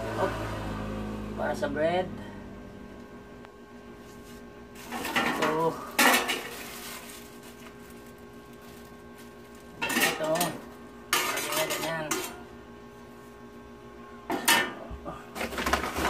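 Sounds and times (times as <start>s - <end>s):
utensils clattering on metal griddle: 4.8s - 6.8s, 9.7s - 12.5s, 14.3s - 14.8s.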